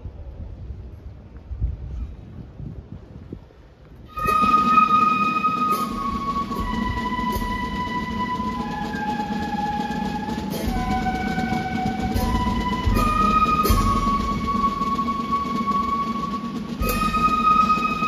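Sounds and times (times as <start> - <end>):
flute band playing slow melody: 4.0 - 18.0.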